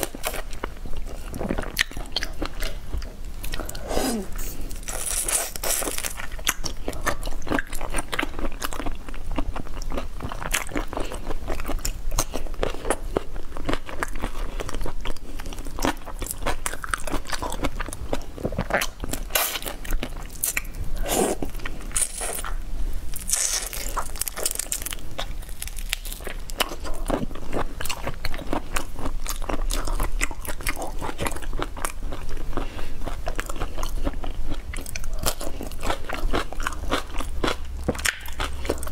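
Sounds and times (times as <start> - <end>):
chewing and crunching shrimp: 0.0 - 38.9.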